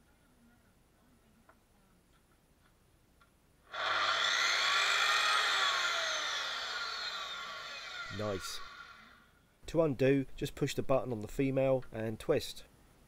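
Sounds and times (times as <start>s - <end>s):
circular saw spinning up and down: 3.7s - 9.3s.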